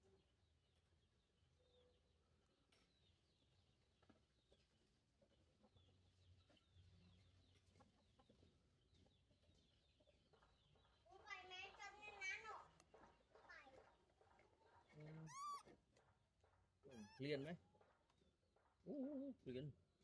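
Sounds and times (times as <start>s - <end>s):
high bird chirps: 15.2s - 15.6s.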